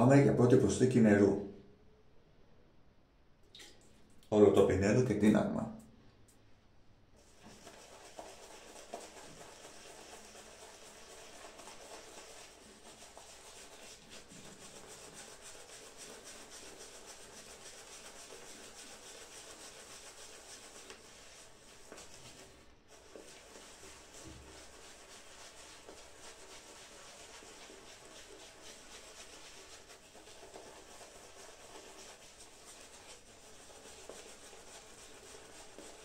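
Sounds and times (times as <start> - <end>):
shaving brush swishing lather: 7.2 - 36.0.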